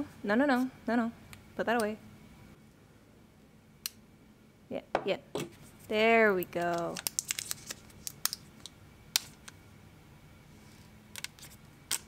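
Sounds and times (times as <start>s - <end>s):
plastic wrap crackling: 6.6s - 9.5s.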